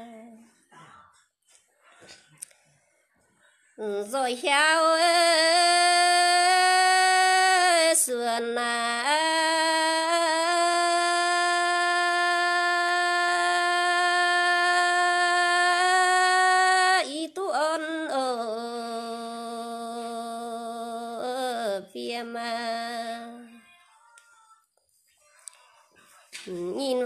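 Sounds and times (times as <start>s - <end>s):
person singing long notes: 0.0s - 0.4s, 3.8s - 23.6s.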